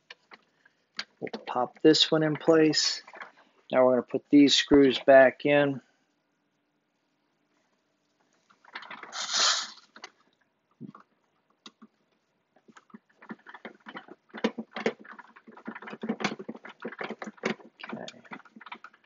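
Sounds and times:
plastic parts scraping: 0:00.1 - 0:03.5, 0:08.5 - 0:10.2, 0:12.6 - 0:19.0.

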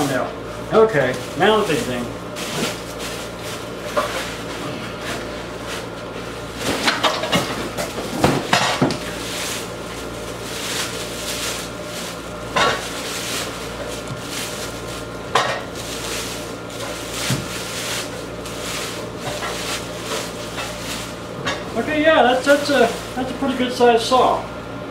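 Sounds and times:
plastic wrapping crinkling: 0:00.1 - 0:23.8
cardboard rustling: 0:00.7 - 0:05.9, 0:07.7 - 0:23.4
sharp handling noises: 0:06.6 - 0:21.8.

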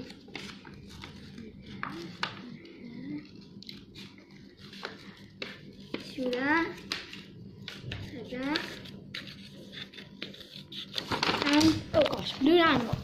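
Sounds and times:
scissors snipping paper: 0:03.6 - 0:11.7.

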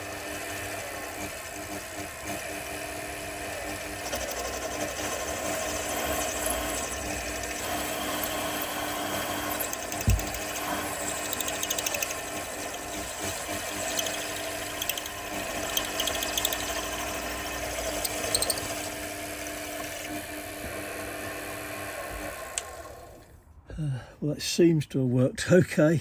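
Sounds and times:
milling machine running: 0:00.0 - 0:23.2
reamer cutting clicks: 0:09.6 - 0:16.8.

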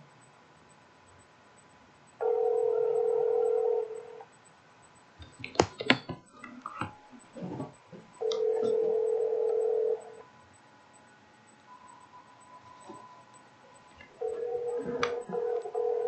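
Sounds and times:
telephone ringback tone: 0:02.2 - 0:04.2, 0:08.2 - 0:10.2, 0:14.2 - 0:16.0
sharp knocks and clicks: 0:05.2 - 0:08.7.

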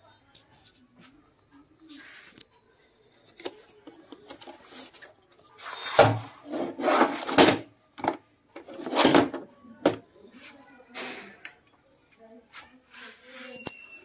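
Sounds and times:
cassette scraping out of sleeve: 0:05.6 - 0:07.6, 0:08.7 - 0:09.4.

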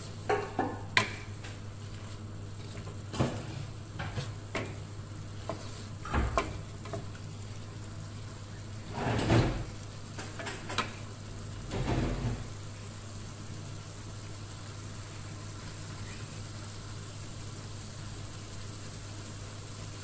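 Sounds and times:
spatula scraping a wok: 0:05.4 - 0:06.6.

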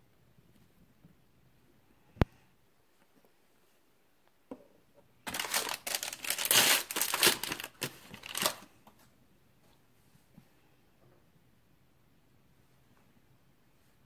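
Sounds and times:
foil packet crinkling and tearing: 0:05.2 - 0:08.7.

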